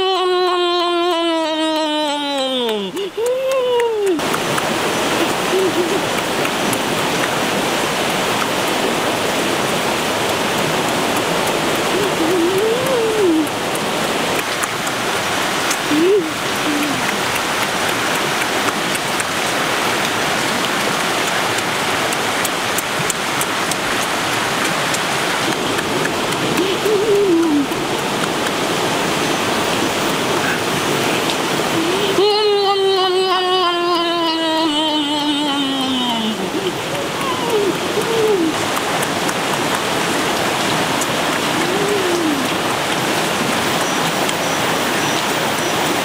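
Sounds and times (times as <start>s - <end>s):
man humming: 0.0s - 4.4s, 5.1s - 6.6s, 11.8s - 13.6s, 15.8s - 17.2s, 25.9s - 28.2s, 30.4s - 39.5s, 41.5s - 42.6s
river rushing over rocks: 2.9s - 46.0s.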